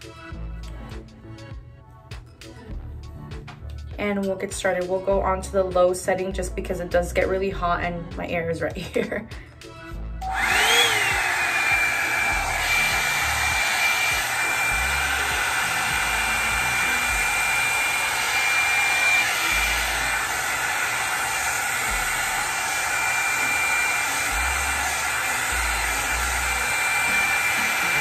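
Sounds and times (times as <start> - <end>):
hot air brush motor whining: 10.2 - 28.0.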